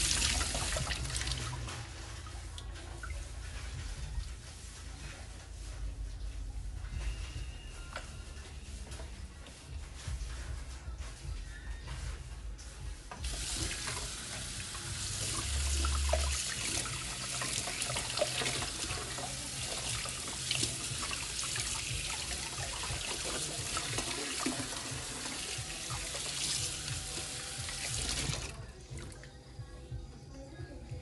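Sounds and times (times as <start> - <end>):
tap water running into sink: 0.0 - 1.6, 13.2 - 28.6.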